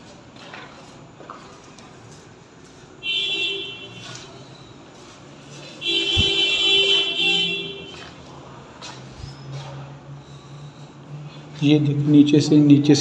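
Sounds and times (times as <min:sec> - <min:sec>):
vehicle horn blaring: 0:03.0 - 0:04.3, 0:05.7 - 0:08.1.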